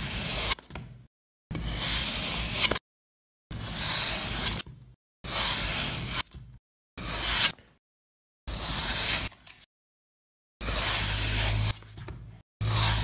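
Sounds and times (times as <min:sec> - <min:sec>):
blade slicing through sand: 0:10.6 - 0:11.8, 0:12.6 - 0:13.0.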